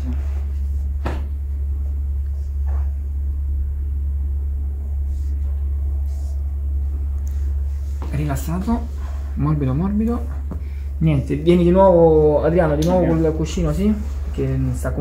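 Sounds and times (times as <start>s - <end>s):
steady low hum: 0.0s - 15.0s
person speaking: 5.0s - 15.0s.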